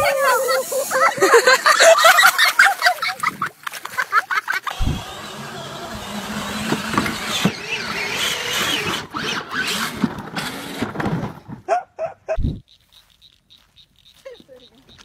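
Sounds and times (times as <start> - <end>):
toy car electric motor hum: 4.6 - 11.4
toy car tipping over clatter: 6.1 - 11.6.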